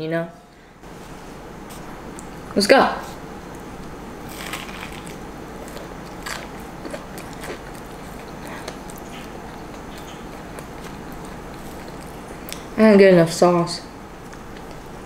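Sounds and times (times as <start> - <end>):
chewing with small crunches: 3.1 - 12.8, 14.2 - 15.0
crunch of fried chicken bite: 4.3 - 7.9.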